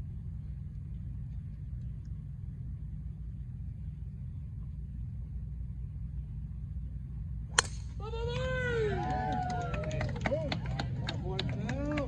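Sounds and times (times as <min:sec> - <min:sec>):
low rumble: 0:00.0 - 0:12.0
golf club striking ball: 0:07.5 - 0:08.0
spectators cheering: 0:08.0 - 0:12.0.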